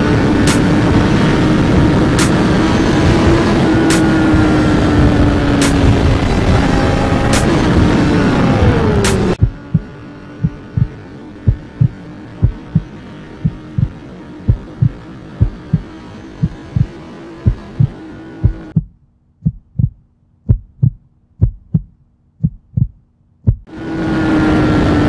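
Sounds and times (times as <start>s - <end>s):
steady hum: 0.0s - 25.0s
heartbeat thumps: 9.4s - 23.7s.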